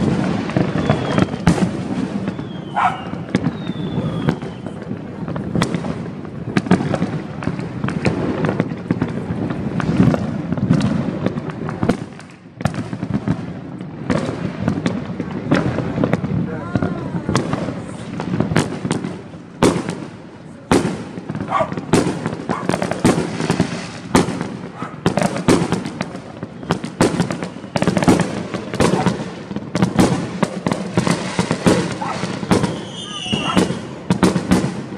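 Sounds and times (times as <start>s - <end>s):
falling firework whistles: 0.0s - 5.0s, 21.4s - 29.4s, 30.0s - 34.8s
firecrackers banging and crackling: 0.0s - 34.9s.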